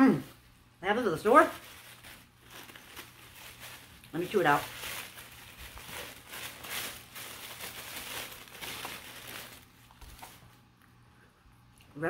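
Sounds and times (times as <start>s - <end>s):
tissue paper rustling: 1.0s - 10.6s.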